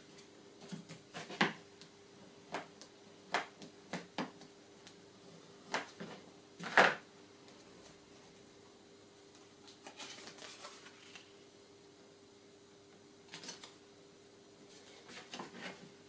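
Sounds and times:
paper rustling: 9.6 - 11.3, 14.7 - 15.9.

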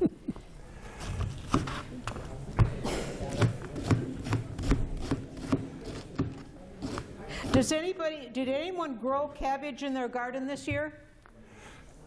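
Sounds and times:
knife cutting cabbage on board: 3.3 - 7.6.

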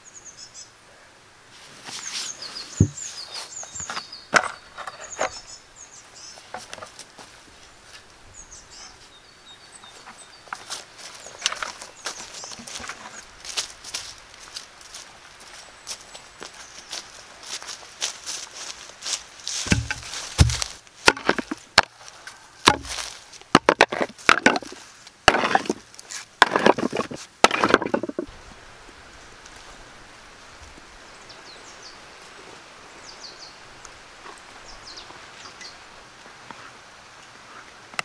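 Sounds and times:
stone slabs knocking and clattering: 19.6 - 21.9, 22.7 - 25.8, 26.4 - 28.3.

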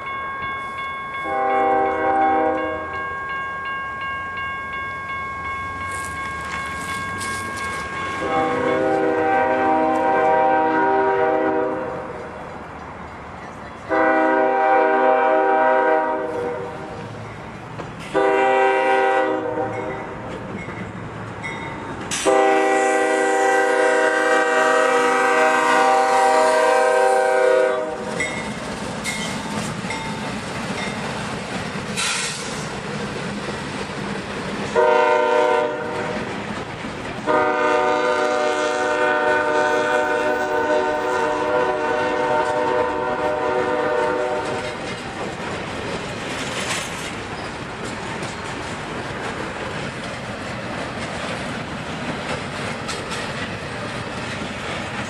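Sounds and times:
locomotive air horn blasts: 1.2 - 3.0, 8.2 - 12.2, 13.9 - 17.0, 18.1 - 20.2, 22.2 - 28.1, 34.8 - 36.2, 37.3 - 44.8
train cars clickety-clack: 5.8 - 55.0.

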